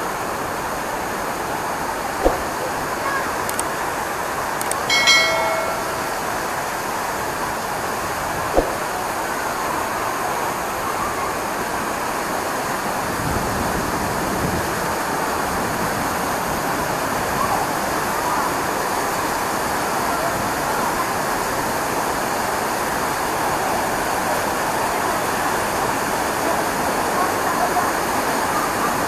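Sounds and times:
faint voices of people: 24.4 - 29.0.

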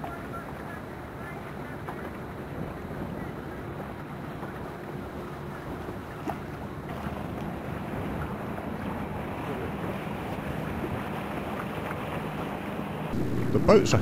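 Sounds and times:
water washing: 0.0 - 14.0
low steady hum: 12.6 - 14.0.

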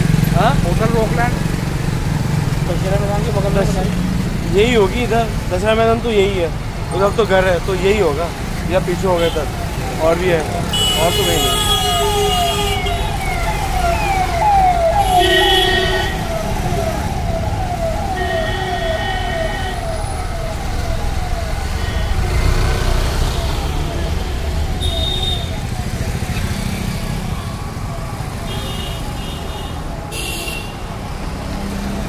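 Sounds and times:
road traffic: 0.0 - 32.0
emergency vehicle siren: 2.7 - 32.0
vehicle horns honking: 10.6 - 13.2, 15.0 - 16.3, 18.2 - 19.8, 24.8 - 25.5, 28.5 - 30.8.

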